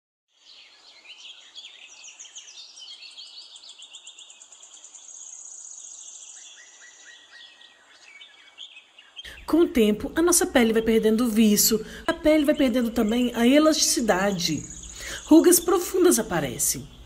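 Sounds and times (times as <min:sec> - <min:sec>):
small birds chirping: 0:00.3 - 0:17.0
faint hiss: 0:14.1 - 0:17.0.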